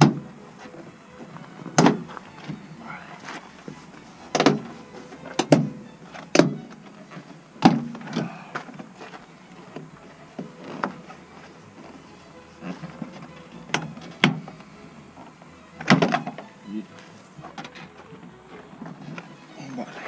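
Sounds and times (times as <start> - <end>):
sharp knocks and clicks: 1.7 - 2.6, 4.3 - 4.7, 5.3 - 6.9, 7.6 - 8.3, 13.1 - 14.5, 15.8 - 16.5.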